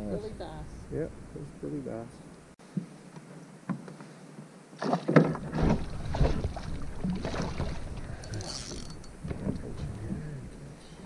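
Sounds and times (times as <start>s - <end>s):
knocks and handling in a canoe: 2.7s - 10.7s.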